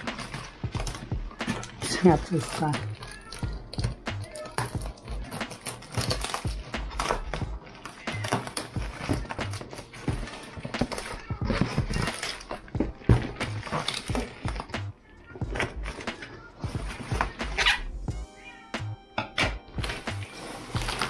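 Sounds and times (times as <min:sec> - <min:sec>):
cardboard rustling: 0:00.0 - 0:17.8, 0:19.7 - 0:21.0
plastic crinkling: 0:00.0 - 0:17.9, 0:19.7 - 0:21.0
scissors cutting plastic wrap: 0:00.0 - 0:17.9, 0:19.2 - 0:21.0.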